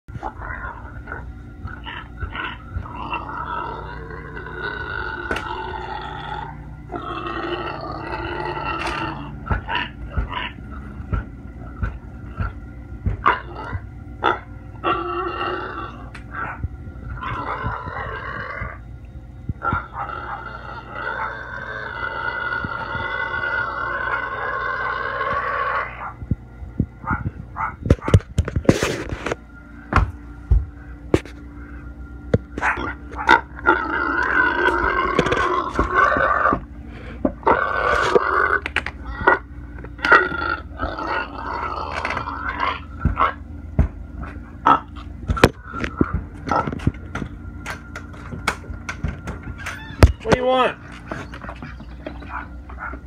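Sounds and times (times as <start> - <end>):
pig grunting: 0.1 - 18.9, 19.6 - 26.2, 32.6 - 43.4, 44.2 - 47.0
pig squealing: 0.2 - 11.0, 13.2 - 18.8, 19.6 - 26.2, 32.6 - 36.6, 37.4 - 43.4, 44.6 - 46.8, 49.4 - 53.0
sharp knocks and bumps: 11.1 - 13.2.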